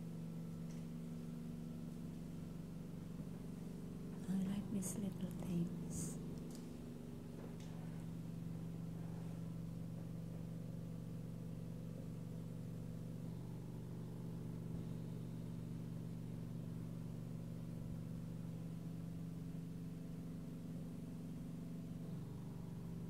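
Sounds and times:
oxygen concentrator humming: 0:00.0 - 0:23.0.

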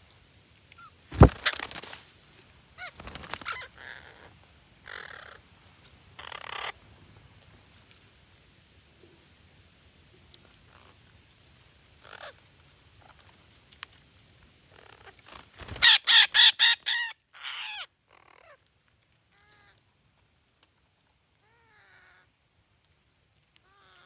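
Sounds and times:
parakeets screeching: 0:06.2 - 0:06.7, 0:15.7 - 0:18.5.

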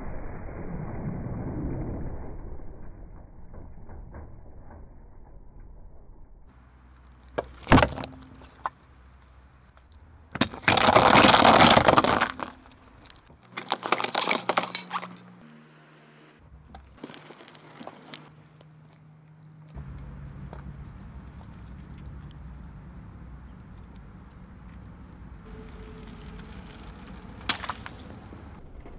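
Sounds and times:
crunching and crackling: 0:06.6 - 0:15.4, 0:16.5 - 0:28.9
tyre crushing objects on asphalt: 0:06.8 - 0:15.3, 0:16.5 - 0:19.0, 0:19.7 - 0:28.6
car engine hum: 0:12.4 - 0:28.6.

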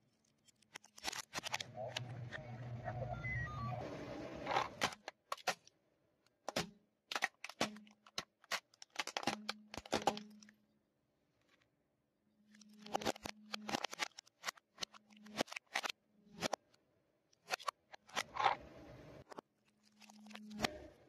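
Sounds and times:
plastic toy cracking and snapping: 0:00.2 - 0:02.1, 0:04.8 - 0:05.8, 0:06.4 - 0:10.6, 0:12.5 - 0:18.6, 0:19.2 - 0:20.9.

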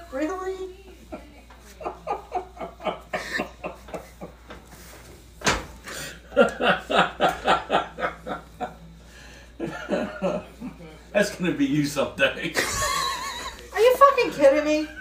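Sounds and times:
people laughing hard: 0:01.0 - 0:04.4, 0:06.1 - 0:08.8, 0:09.6 - 0:10.6, 0:12.6 - 0:13.7.

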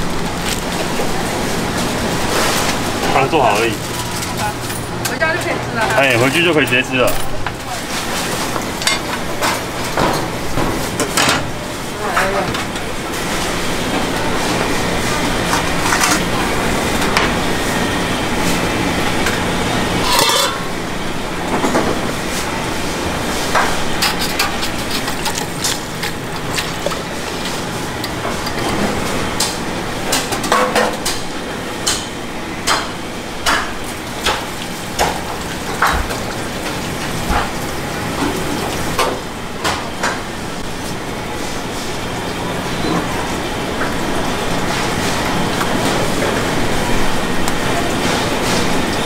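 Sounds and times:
steady background noise: 0:00.0 - 0:49.0
utensils and containers clattering: 0:02.2 - 0:12.9, 0:15.4 - 0:16.4, 0:20.0 - 0:20.7, 0:23.5 - 0:32.0.

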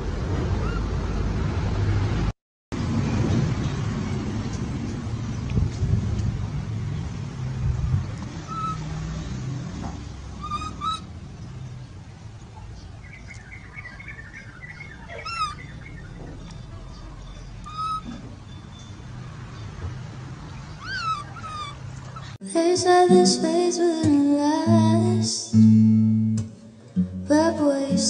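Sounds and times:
animal chirps and squeaks: 0:08.4 - 0:08.9, 0:10.4 - 0:11.1, 0:13.2 - 0:19.4, 0:20.6 - 0:22.4
quick twittering: 0:13.3 - 0:19.3, 0:20.7 - 0:22.4
low rumble: 0:14.9 - 0:18.5
sharp falling squeal: 0:17.4 - 0:19.0.

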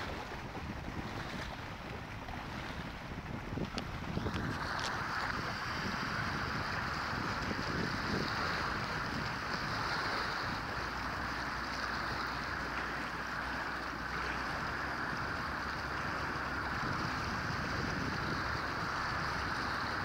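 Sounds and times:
water washing against rocks: 0:00.0 - 0:20.0
wind gusting over microphone: 0:00.0 - 0:20.0.

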